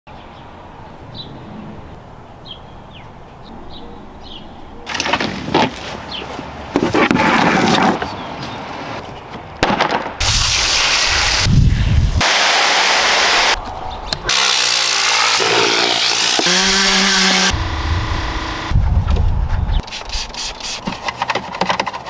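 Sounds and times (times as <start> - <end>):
compressed air blow gun hissing: 10.2 - 13.6
hissing spray: 10.2 - 13.6.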